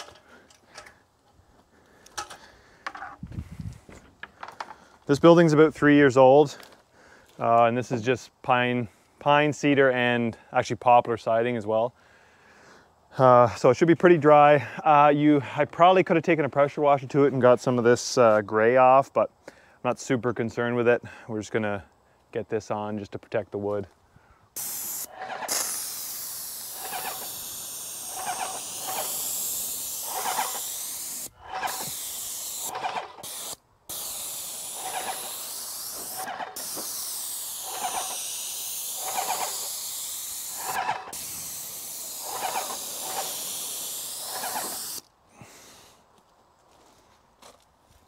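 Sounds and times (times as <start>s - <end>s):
paint sprayer hissing: 24.6s - 45.1s.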